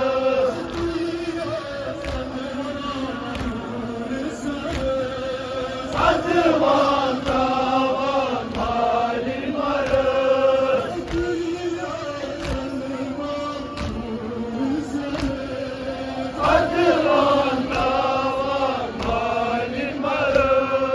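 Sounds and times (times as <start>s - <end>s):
men chanting a lament: 0.0s - 20.9s
chest slaps: 13.7s - 14.1s.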